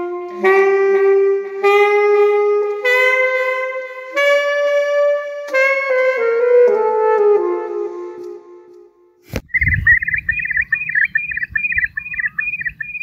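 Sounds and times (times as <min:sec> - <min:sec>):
saxophone playing: 0:00.0 - 0:09.3.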